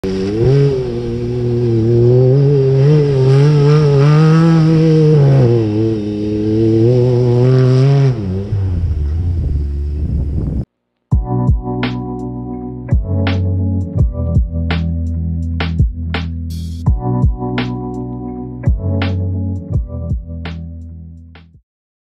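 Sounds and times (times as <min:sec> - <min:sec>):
engine at high revs: 0:00.0 - 0:10.6.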